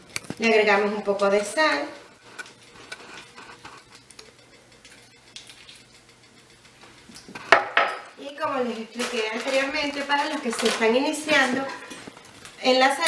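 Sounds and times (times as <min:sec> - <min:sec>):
measuring spoon clicking and tapping: 0:03.8 - 0:08.7.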